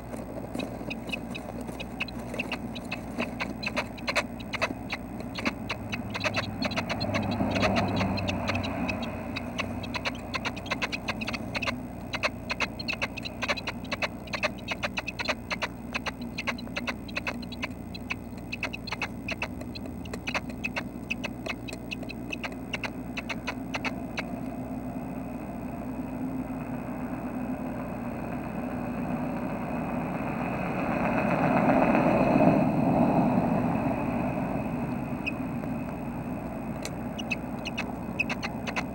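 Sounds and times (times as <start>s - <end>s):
nestlings scratching and tapping: 0.0s - 24.0s, 36.8s - 38.9s.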